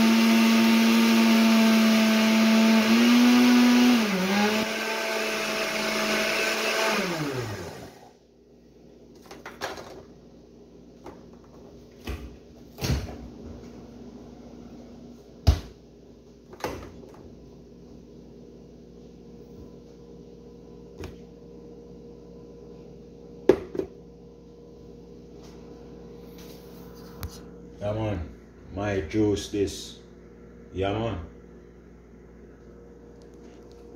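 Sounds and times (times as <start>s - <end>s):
blender motor running: 0.0s - 8.1s.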